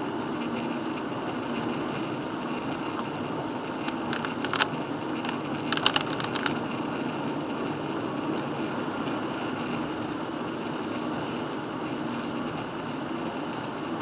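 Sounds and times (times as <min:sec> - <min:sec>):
tyre and road noise on wet road: 0:00.0 - 0:14.0.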